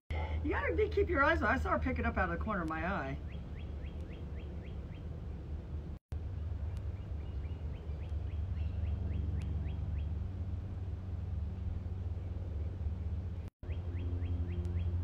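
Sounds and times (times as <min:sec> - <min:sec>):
steady low rumble: 0:00.1 - 0:15.0
bird chirping: 0:03.0 - 0:05.4, 0:06.6 - 0:10.2, 0:12.2 - 0:15.0.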